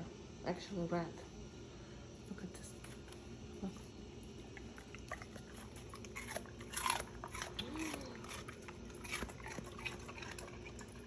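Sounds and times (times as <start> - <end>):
dog chewing with wet crunches: 2.8 - 11.0.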